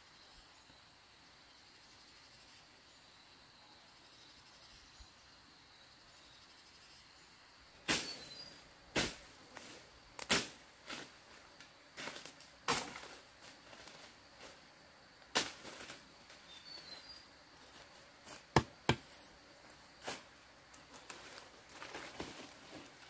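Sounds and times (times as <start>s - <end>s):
machete chopping wood: 18.5s - 19.1s.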